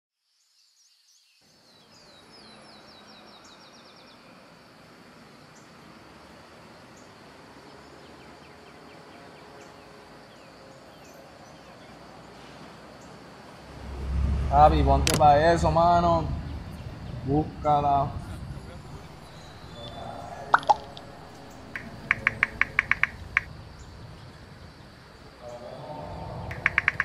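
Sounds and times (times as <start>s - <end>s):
steady background hum: 13.5s - 27.0s
small birds chirping: 15.6s - 27.0s.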